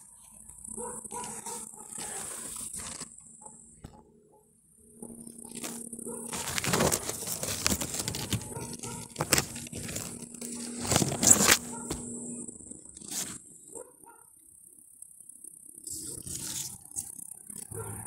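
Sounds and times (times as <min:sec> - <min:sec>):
leaves rustling and crackling: 0:05.4 - 0:12.0.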